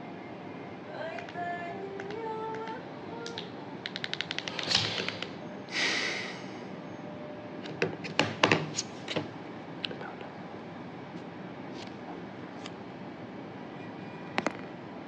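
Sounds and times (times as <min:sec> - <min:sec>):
short hiss: 0:04.5 - 0:06.4.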